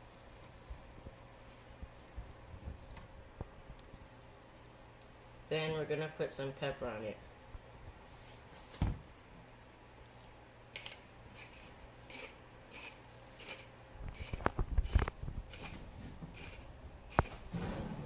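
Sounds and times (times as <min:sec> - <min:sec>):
pepper grinder crunching: 0:12.1 - 0:17.4.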